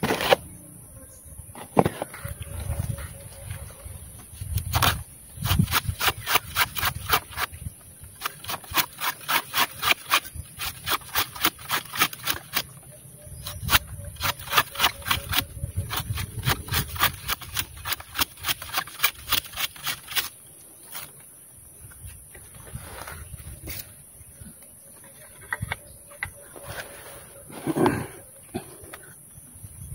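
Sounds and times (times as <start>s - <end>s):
knife scraping flower spathe: 4.3s - 12.7s, 13.4s - 21.1s.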